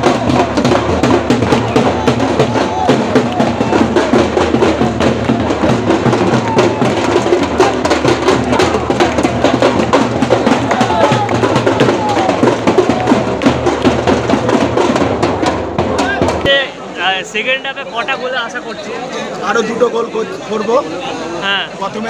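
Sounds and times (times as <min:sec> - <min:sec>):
drums beaten with sticks: 0:00.0 - 0:16.8
crowd shouting and chanting: 0:00.0 - 0:22.0.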